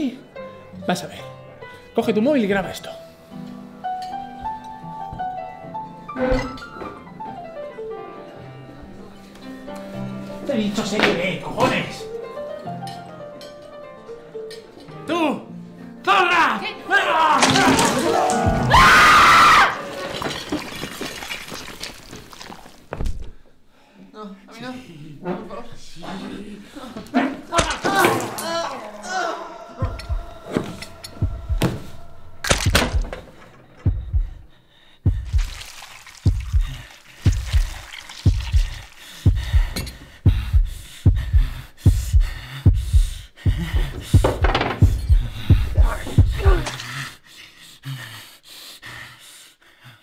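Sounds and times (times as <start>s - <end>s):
loud scream: 18.7s - 20.0s
heartbeat double thump: 29.8s - 30.4s, 31.2s - 33.2s, 33.9s - 34.5s, 35.1s - 35.6s, 36.3s - 46.6s
scuffling: 35.1s - 40.1s.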